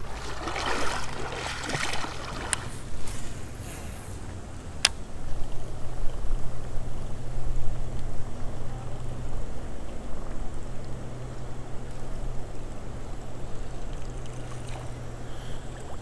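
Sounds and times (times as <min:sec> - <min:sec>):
river water splashing and trickling: 0:00.0 - 0:05.4, 0:09.3 - 0:16.0.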